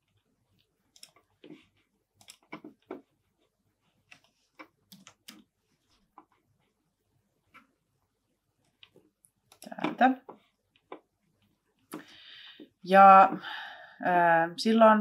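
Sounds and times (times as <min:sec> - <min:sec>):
computer mouse clicking: 0:00.1 - 0:01.6, 0:02.2 - 0:03.0, 0:04.0 - 0:05.5, 0:08.6 - 0:09.9.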